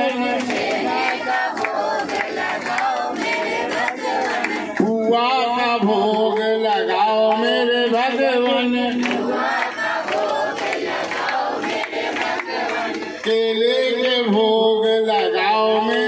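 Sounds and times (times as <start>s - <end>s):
devotional chanting: 0.0s - 16.0s
crowd voices: 9.0s - 13.7s.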